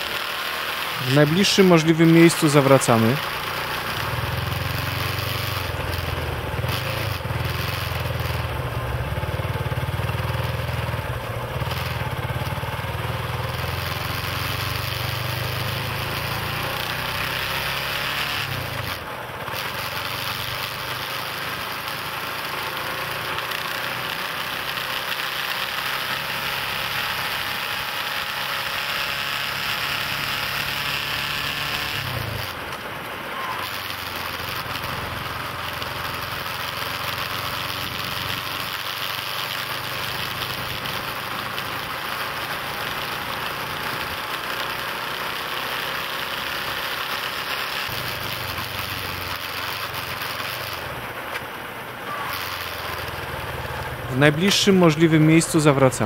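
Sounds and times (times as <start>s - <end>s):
road and wind noise: 0.0s - 56.0s
vehicle engine humming: 0.0s - 56.0s.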